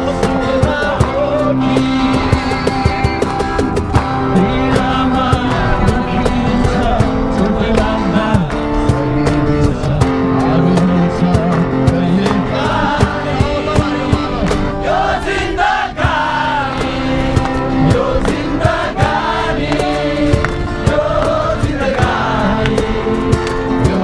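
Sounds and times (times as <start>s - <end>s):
acoustic guitars strumming: 0.0s - 24.0s
group singing: 0.0s - 24.0s.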